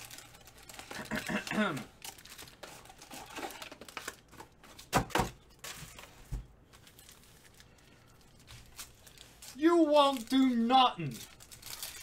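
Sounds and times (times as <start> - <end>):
foil wrapper crinkling: 0.0 - 12.0.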